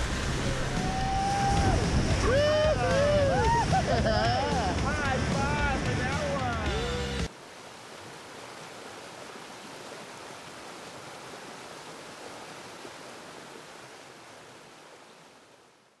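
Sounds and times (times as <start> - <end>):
rushing water: 0.0 - 16.0.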